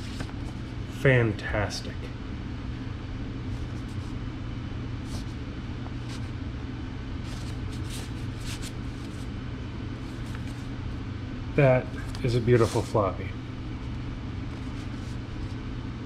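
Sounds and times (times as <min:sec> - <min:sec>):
low hum: 0:00.0 - 0:16.0
disk sliding in paper sleeve: 0:12.1 - 0:13.1.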